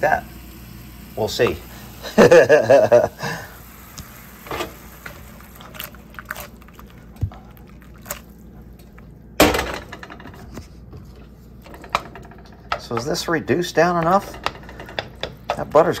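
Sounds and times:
sauce simmering in a skillet: 0:00.0 - 0:09.2
pan scraping on stovetop: 0:04.4 - 0:05.8, 0:10.0 - 0:16.0.

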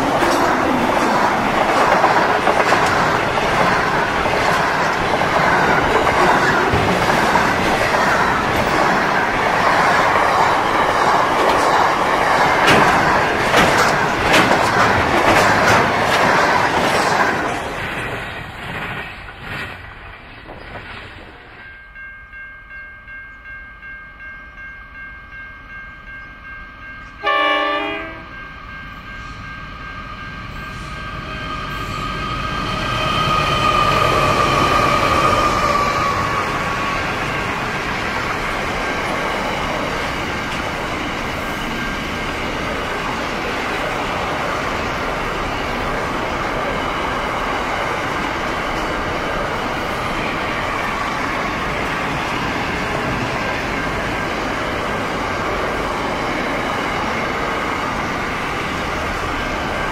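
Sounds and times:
locomotives passing: 0:00.0 - 0:21.5, 0:28.5 - 0:59.9
wagons rumbling on rails: 0:00.0 - 0:23.6, 0:24.3 - 0:59.9
locomotive horn blast: 0:27.2 - 0:28.3.

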